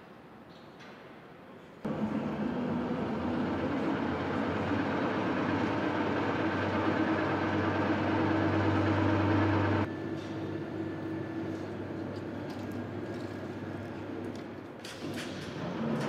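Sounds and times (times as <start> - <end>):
crane electric drive humming: 1.9 - 14.4.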